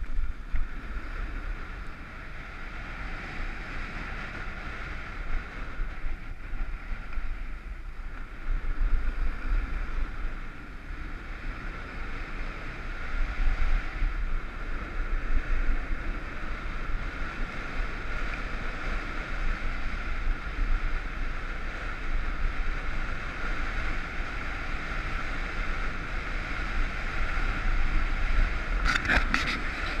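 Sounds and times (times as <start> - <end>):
wind buffeting microphone: 0.0 - 30.0
skis hissing over snow: 28.7 - 30.0.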